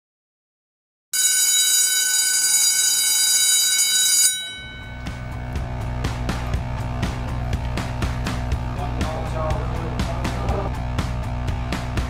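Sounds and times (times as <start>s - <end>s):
electric bell ringing: 1.2s - 6.0s
music with bass beat: 5.0s - 12.0s.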